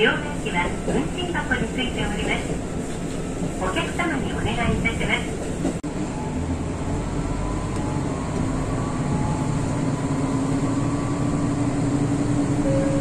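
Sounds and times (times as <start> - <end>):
diesel railcar engine revving: 5.8 - 13.0.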